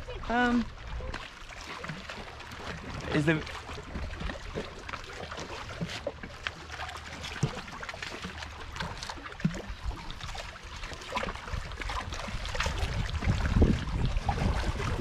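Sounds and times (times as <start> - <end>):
small splashes and knocks: 0.0 - 15.0
water lapping against rocks: 0.0 - 15.0
wind rumble on microphone: 9.4 - 15.0.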